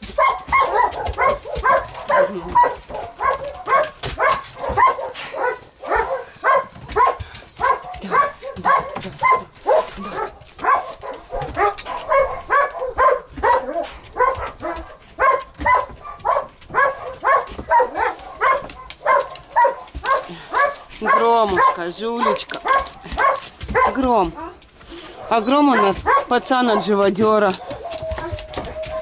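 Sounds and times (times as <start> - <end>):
dog whining: 4.8 - 10.4, 27.6 - 29.0.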